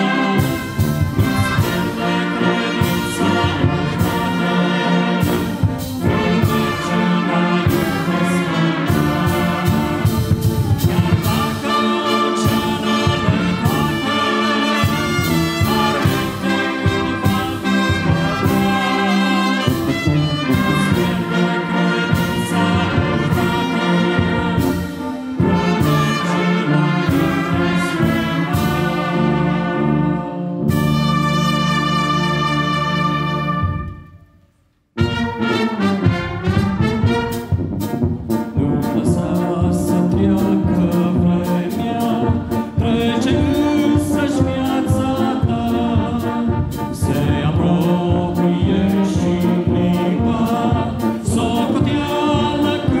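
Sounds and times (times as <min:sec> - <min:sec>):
brass band playing a hymn: 0:00.0 - 0:53.0.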